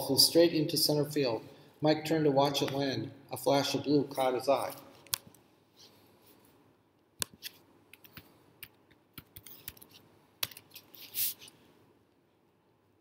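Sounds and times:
papery swish of book: 0:10.8 - 0:11.6.

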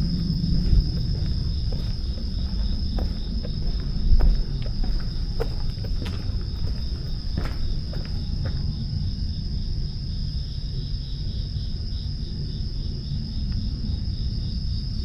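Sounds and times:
low rumble: 0:00.0 - 0:11.0
insects trilling: 0:00.0 - 0:15.0.

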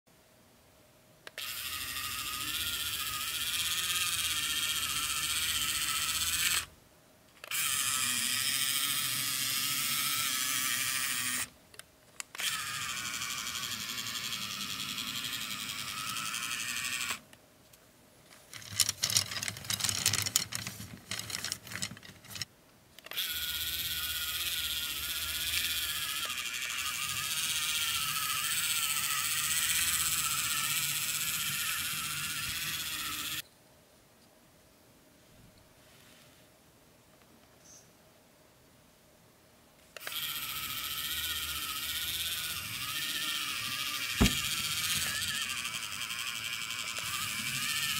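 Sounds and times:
small electric motor whirring: 0:01.3 - 0:06.7, 0:07.4 - 0:11.5, 0:12.2 - 0:17.2, 0:18.5 - 0:33.4, 0:40.0 - 0:47.9.

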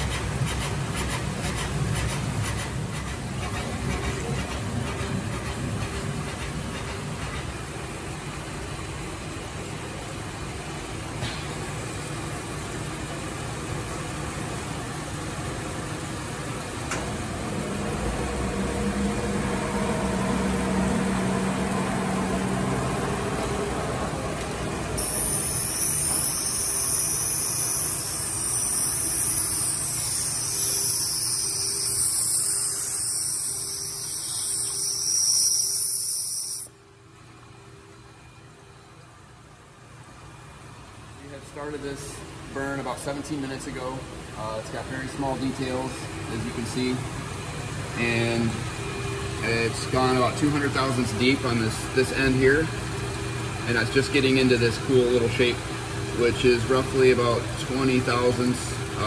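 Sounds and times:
machine humming: 0:12.0 - 0:39.2, 0:40.8 - 0:59.0
loud high hiss: 0:25.0 - 0:36.7.

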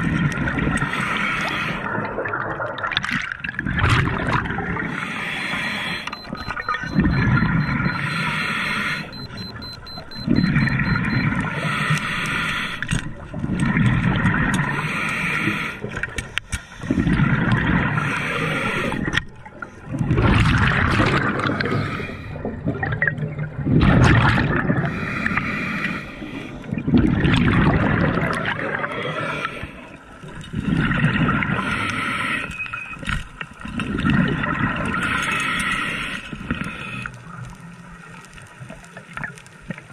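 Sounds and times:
gurgling exhaust bubbles: 0:01.8 - 0:04.9, 0:16.8 - 0:18.2, 0:19.9 - 0:25.0, 0:26.7 - 0:28.9
regulator hissing inhale: 0:04.9 - 0:06.3, 0:08.0 - 0:09.3, 0:11.5 - 0:12.9, 0:14.7 - 0:15.9, 0:18.0 - 0:19.1, 0:21.6 - 0:22.4, 0:24.9 - 0:26.7, 0:29.1 - 0:30.0, 0:31.6 - 0:32.6, 0:35.1 - 0:37.2.

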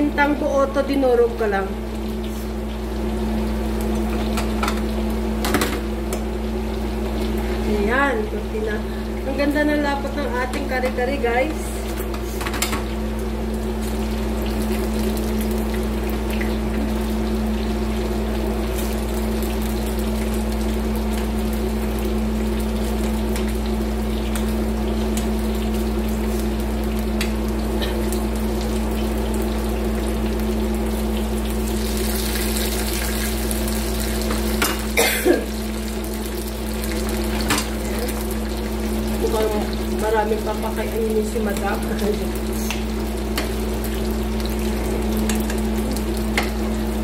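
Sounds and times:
food sizzling in hot oil: 0:00.0 - 0:47.0.

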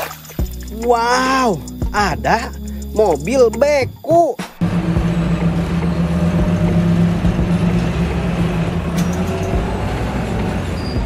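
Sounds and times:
vehicle engine running: 0:04.6 - 0:11.0.

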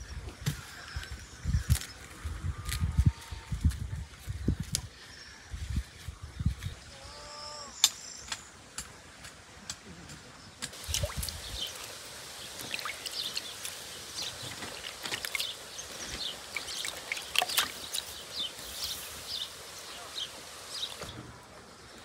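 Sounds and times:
water splashing in a basin: 0:10.7 - 0:18.6.

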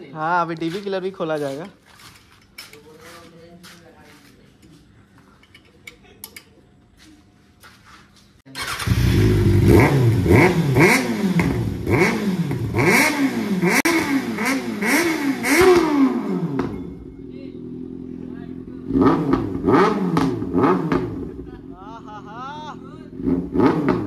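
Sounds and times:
motorcycle engine revving: 0:08.5 - 0:22.2, 0:23.0 - 0:24.0.

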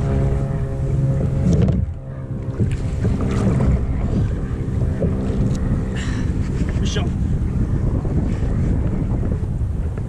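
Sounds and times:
paddle stroking through water: 0:00.0 - 0:07.4
water splashing against kayak: 0:00.0 - 0:07.4
steady low drone: 0:00.0 - 0:10.0
strong wind buffeting microphone: 0:00.0 - 0:10.0.

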